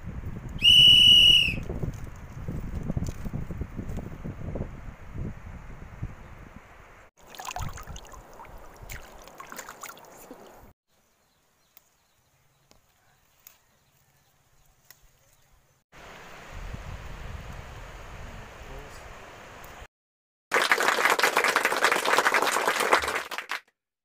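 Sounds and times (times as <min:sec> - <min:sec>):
wind rumbling on microphone: 0:00.0 - 0:09.2, 0:16.4 - 0:18.9
flowing river water: 0:07.2 - 0:10.7.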